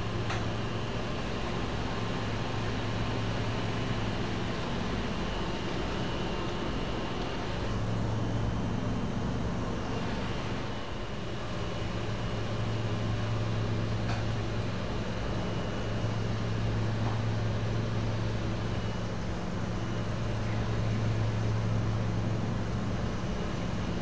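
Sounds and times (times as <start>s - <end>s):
machine low hum: 0.0s - 24.0s.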